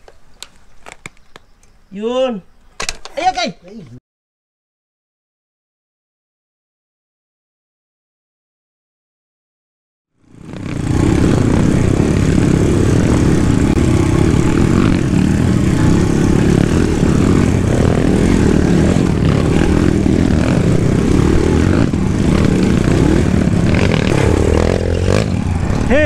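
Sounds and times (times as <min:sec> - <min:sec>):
dirt bike engine running: 0:10.2 - 0:26.0.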